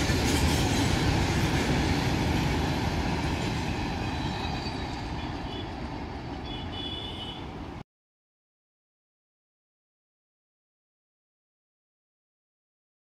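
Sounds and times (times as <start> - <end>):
train rumbling on track: 0.0 - 7.8.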